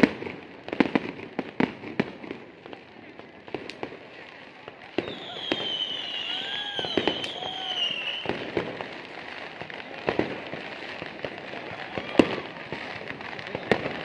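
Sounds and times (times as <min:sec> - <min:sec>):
fireworks bangs and pops: 0:00.0 - 0:14.0
high wavering firework whistle: 0:04.9 - 0:08.8, 0:11.6 - 0:14.0.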